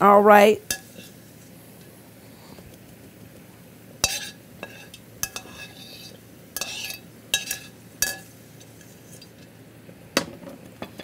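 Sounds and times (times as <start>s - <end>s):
metal spoon clinking on pan: 0.6s - 1.1s, 4.0s - 8.3s.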